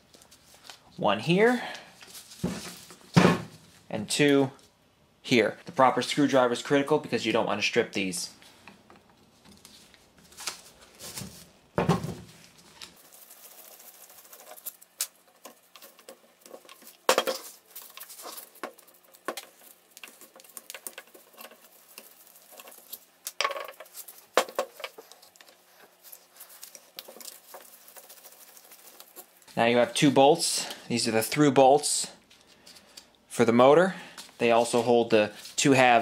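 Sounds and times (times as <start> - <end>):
knocks on workbench: 11.8 - 12.3.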